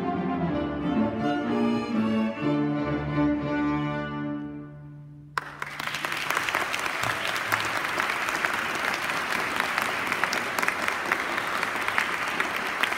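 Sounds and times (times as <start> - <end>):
audience applause: 5.4 - 12.9.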